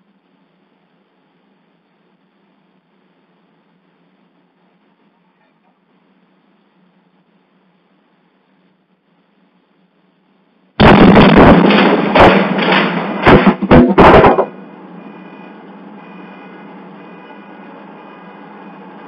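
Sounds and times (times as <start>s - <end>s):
quiet steady noise: 0.0s - 19.0s
explosion boom: 10.8s - 14.6s
sharp bangs: 10.8s - 19.0s.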